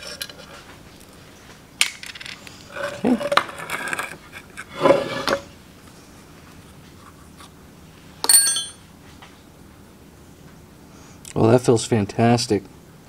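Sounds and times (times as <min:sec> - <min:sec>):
sharp metallic clink: 0:08.2 - 0:08.8.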